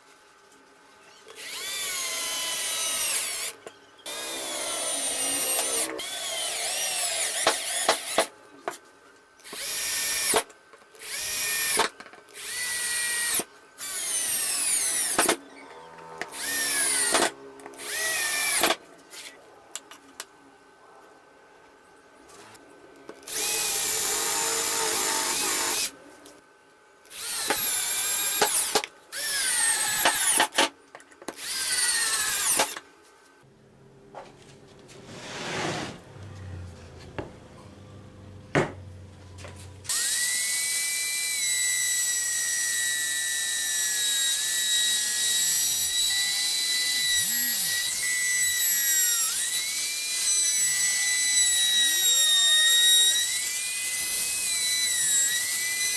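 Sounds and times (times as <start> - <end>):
router whining: 1.1 - 8.3, 9.4 - 19.4, 23.2 - 26.3, 27.1 - 30.7, 31.3 - 32.8, 39.4 - 55.9
power tool bursts spinning down: 39.9 - 55.9.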